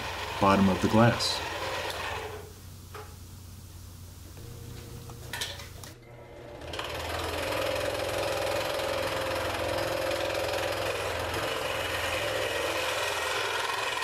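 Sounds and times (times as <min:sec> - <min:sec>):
scroll saw cutting wood: 0:00.0 - 0:02.5, 0:06.4 - 0:14.0.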